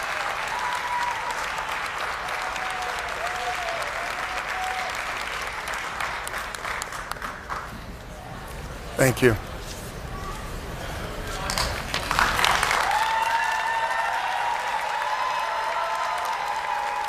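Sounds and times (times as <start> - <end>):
audience applauding: 0.0 - 7.9, 11.5 - 17.0.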